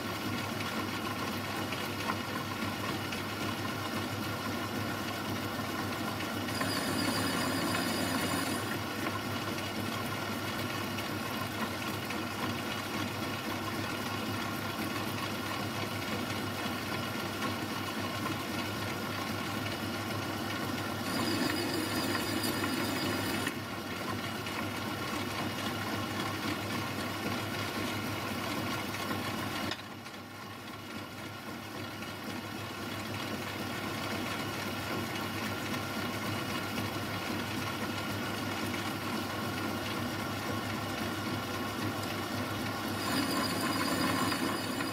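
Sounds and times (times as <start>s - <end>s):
metal lathe running with whine: 5.3s - 9.6s, 19.4s - 23.6s, 42.3s - 44.9s.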